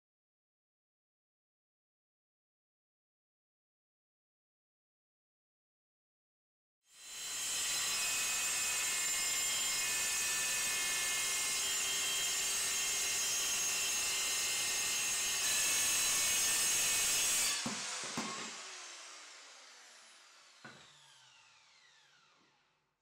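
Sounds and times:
circular saw cutting: 6.9 - 22.7
saw motor winding down: 17.3 - 22.7
knocks: 17.6 - 18.5.

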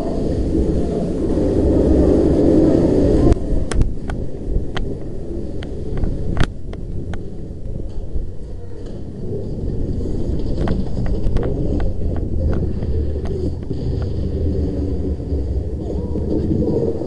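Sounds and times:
microphone handling noise: 0.0 - 17.0
wind rumble: 0.0 - 17.0
sharp clicks and pops: 3.3 - 8.0.

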